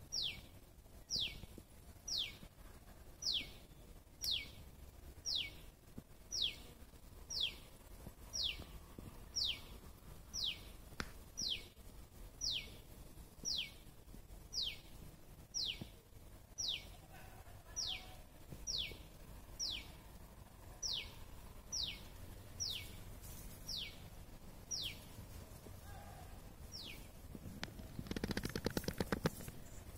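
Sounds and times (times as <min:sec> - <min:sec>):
rough rustling: 0:22.7 - 0:29.9.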